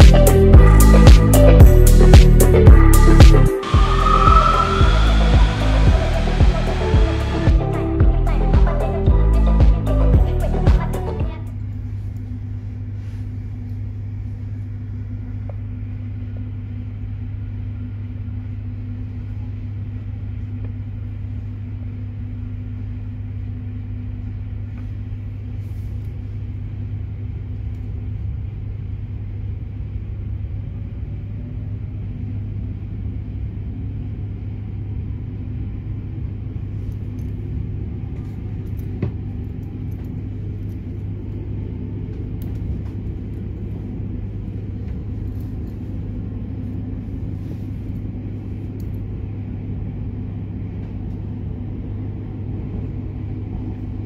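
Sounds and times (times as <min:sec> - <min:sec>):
train interior low hum: 0:00.0 - 0:54.0
faint rising whine: 0:01.5 - 0:08.0.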